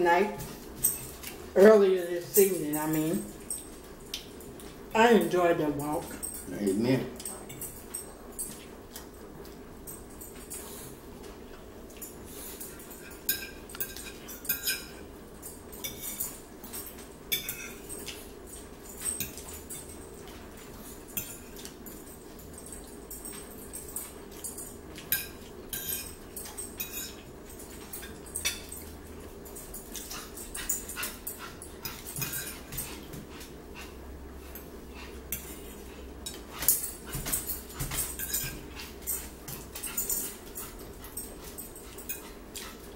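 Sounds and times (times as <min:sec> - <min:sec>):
steady low hum: 0:00.0 - 0:42.9
chewing and lip-smacking: 0:03.5 - 0:04.8
fork against a plate: 0:26.8 - 0:27.3, 0:31.8 - 0:33.0.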